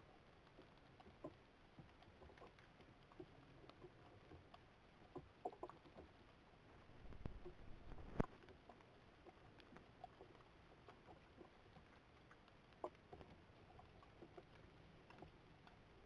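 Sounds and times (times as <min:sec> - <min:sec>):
faint ticks and rustles: 0:00.0 - 0:16.0.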